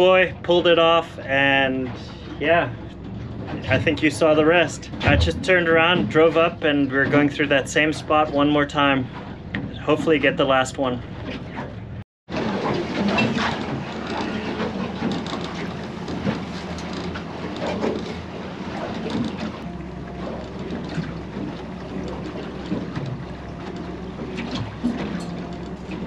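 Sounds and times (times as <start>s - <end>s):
boat motor humming: 0.0s - 26.0s
water rushing along hull: 0.0s - 26.0s
wind buffeting microphone: 3.3s - 6.6s.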